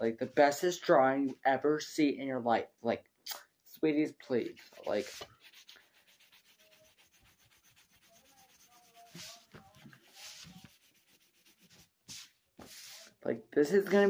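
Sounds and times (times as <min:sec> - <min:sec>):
coloring strokes on paper: 0:04.4 - 0:13.2.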